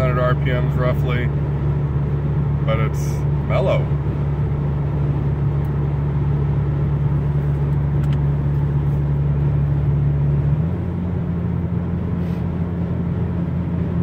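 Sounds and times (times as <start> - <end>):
low exhaust rumble: 0.0 - 14.0
road noise: 0.0 - 14.0.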